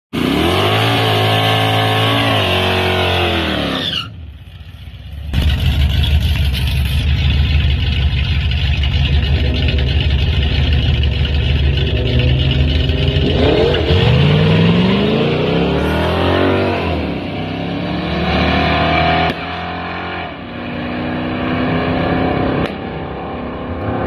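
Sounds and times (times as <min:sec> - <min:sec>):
car engine revving: 0:00.2 - 0:03.8, 0:05.3 - 0:24.0
car engine pulsing idle: 0:04.5 - 0:14.0.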